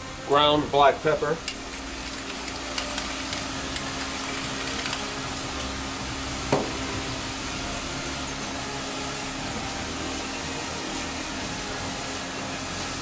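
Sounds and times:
steady hum: 0.0s - 13.0s
knock: 6.5s - 6.8s.

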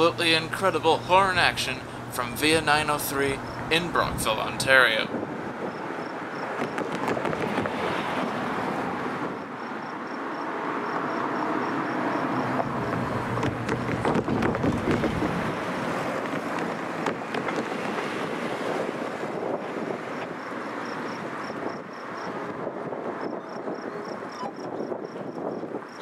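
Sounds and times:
road traffic passing: 0.0s - 26.0s
wind on microphone: 5.1s - 9.8s, 12.5s - 26.0s.

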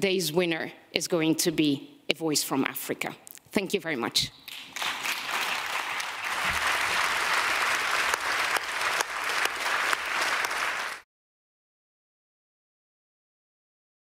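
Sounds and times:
audience applauding: 4.5s - 11.0s.

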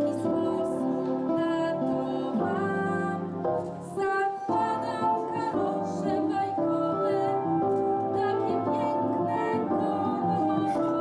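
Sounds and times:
piano accompaniment: 0.0s - 11.0s
group singing: 4.4s - 11.0s.

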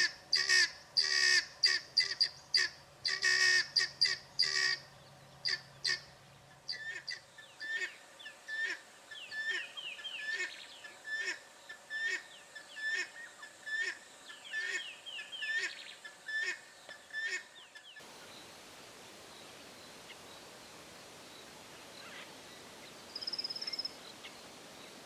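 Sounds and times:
guineafowl cackling calls: 0.0s - 18.1s.

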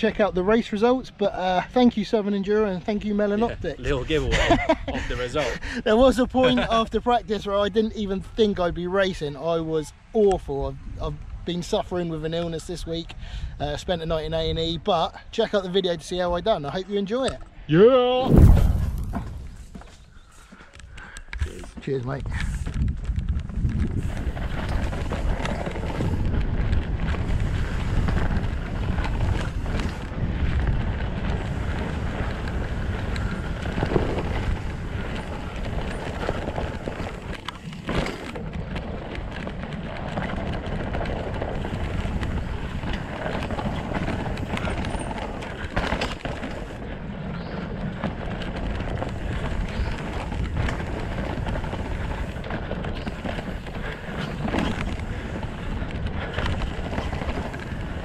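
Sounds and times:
wind buffeting microphone: 0.0s - 58.0s
tyre rumble over dirt: 18.2s - 20.4s, 21.4s - 58.0s
bike clattering over bumps: 18.3s - 58.0s.

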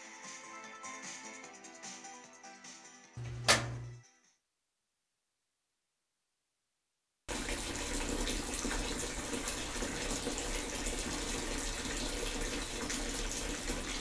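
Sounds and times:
tap water running into bathtub: 3.2s - 3.9s, 7.3s - 14.0s.

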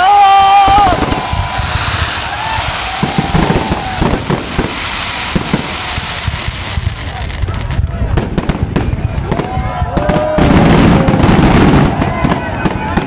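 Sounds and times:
fireworks crackling and hissing: 0.0s - 13.0s
firework shells bursting: 0.6s - 9.4s.

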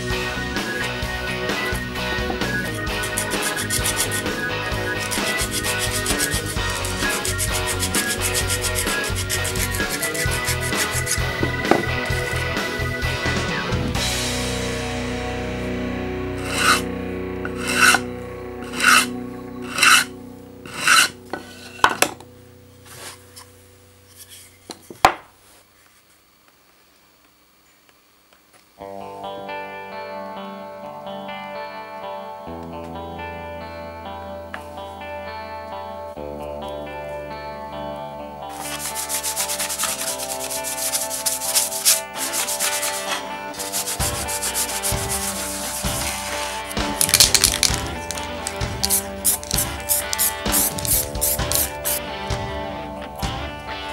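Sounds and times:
background music: 0.0s - 23.1s, 28.8s - 53.9s
wood sanding strokes: 2.3s - 12.3s, 16.4s - 16.9s, 17.5s - 20.1s, 20.7s - 22.0s, 38.5s - 52.0s
abrasive block rasping on steel: 2.6s - 11.3s, 16.4s - 16.9s, 17.5s - 18.0s, 18.6s - 22.0s, 38.6s - 46.2s.

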